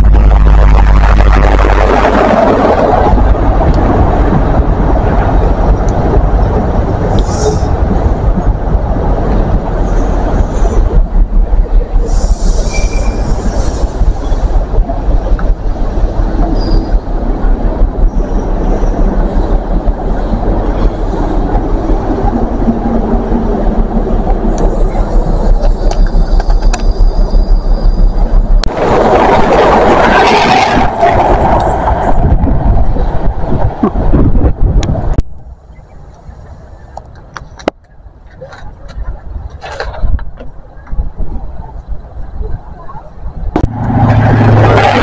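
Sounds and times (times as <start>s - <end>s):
diesel train engine: 0.0s - 45.0s
train wheels rumbling on rail: 0.0s - 45.0s
high wheel squeals: 12.5s - 13.4s.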